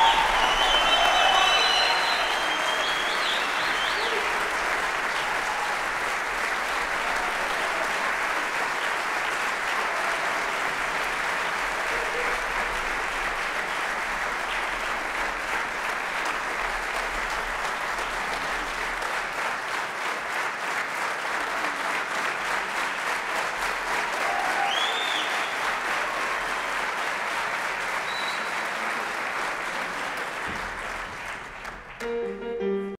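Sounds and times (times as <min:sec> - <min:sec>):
whistle: 0:00.0 - 0:04.2, 0:24.7 - 0:25.6, 0:28.0 - 0:28.6
audience applauding: 0:00.0 - 0:32.5.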